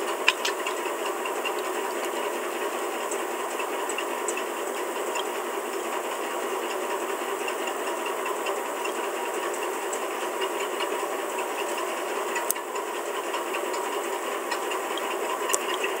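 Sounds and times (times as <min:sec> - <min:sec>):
faint ticks: 0:14.5 - 0:16.0.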